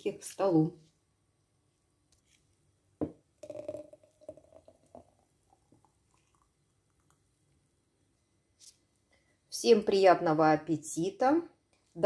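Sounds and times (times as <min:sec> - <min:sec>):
straw knocking against glass: 0:03.0 - 0:04.7.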